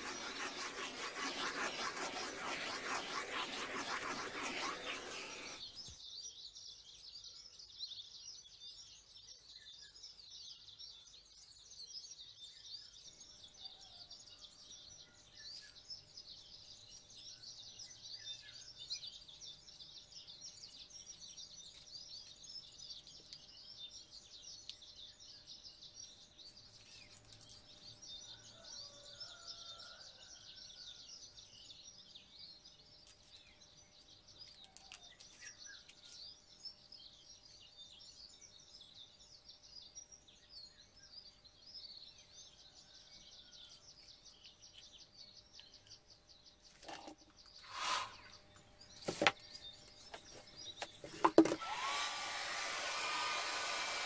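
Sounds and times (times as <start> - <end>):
birds twittering: 0.0 - 6.0, 13.4 - 54.0
lower bird calls: 46.8 - 54.0.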